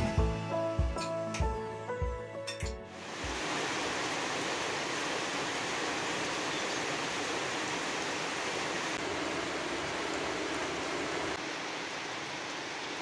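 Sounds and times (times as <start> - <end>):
background music: 0.0 - 3.0
heavy rain falling: 2.9 - 13.0.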